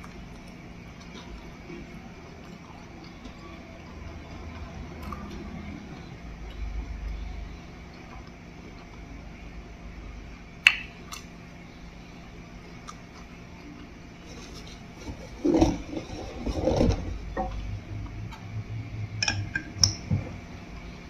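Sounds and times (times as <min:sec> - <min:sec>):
faint steady hum: 0:00.0 - 0:21.0
person chewing food: 0:12.7 - 0:15.8.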